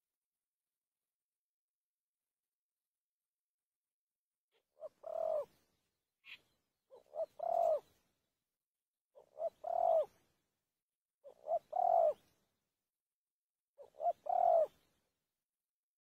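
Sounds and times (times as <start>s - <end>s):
dove cooing: 4.6s - 5.6s, 6.2s - 8.0s, 9.2s - 10.2s, 11.2s - 12.3s, 13.8s - 14.9s.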